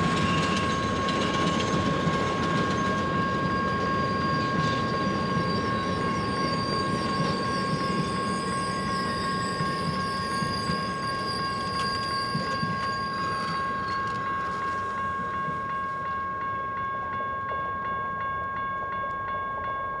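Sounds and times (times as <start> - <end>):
wheel squeal: 0.0 - 14.9
crossing signal bell ringing: 0.0 - 20.0
train wheels rumbling on rails: 0.0 - 20.0.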